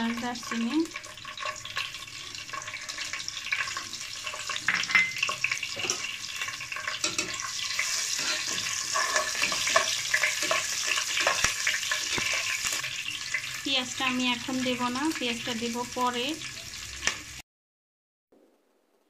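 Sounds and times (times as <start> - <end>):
spices sizzling in hot oil: 0.0 - 17.4
metal spoon stirring pot: 0.9 - 13.5.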